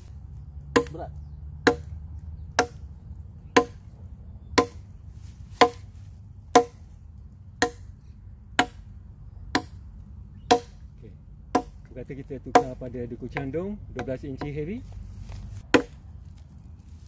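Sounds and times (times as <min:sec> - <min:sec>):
blade chopping into log: 0:05.6 - 0:05.8.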